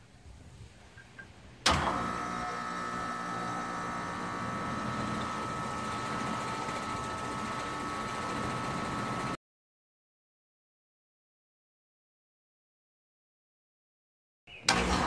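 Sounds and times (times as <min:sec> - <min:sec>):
air conditioner clunk: 0:01.7 - 0:02.7.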